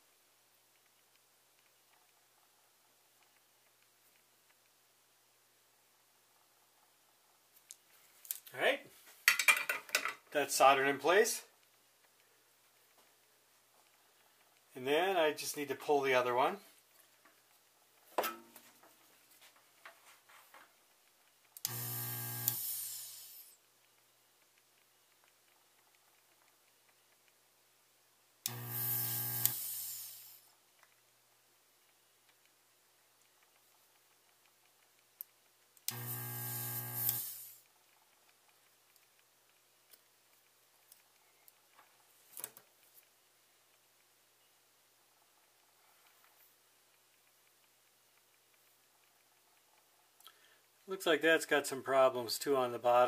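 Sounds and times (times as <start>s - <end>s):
desoldering pump buzzing: 21.6s - 23.5s, 28.4s - 30.4s, 35.9s - 37.6s
suction hiss: 21.6s - 23.6s, 28.5s - 30.5s, 35.9s - 37.6s.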